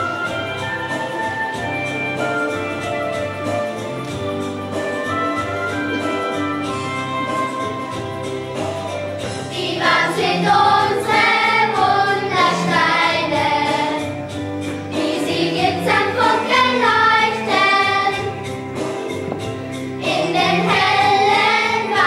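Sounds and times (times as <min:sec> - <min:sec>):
instrumental accompaniment: 0:00.0 - 0:22.0
children singing: 0:09.5 - 0:14.2, 0:14.9 - 0:19.0, 0:20.0 - 0:22.0.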